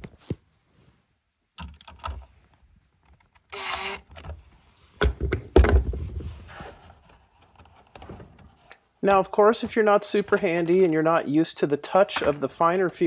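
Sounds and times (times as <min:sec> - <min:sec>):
hands handling plastic housing: 0:05.0 - 0:11.1.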